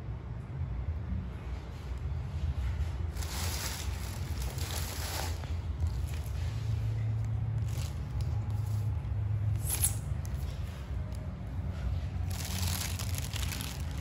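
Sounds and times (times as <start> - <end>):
steady low hum: 0.0 - 14.0
plastic bag crinkling: 3.1 - 6.4, 12.2 - 14.0.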